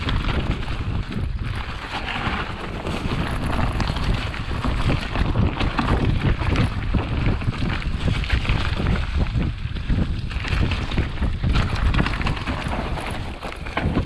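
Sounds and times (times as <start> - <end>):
bike rattles and knocks: 0.0 - 14.0
wind buffeting microphone: 0.0 - 14.0.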